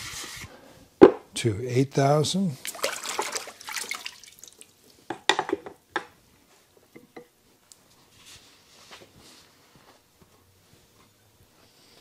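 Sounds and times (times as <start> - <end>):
whetstone knocked on bench: 1.0 - 1.2, 5.1 - 6.1
water dripping and splashing: 2.6 - 5.0.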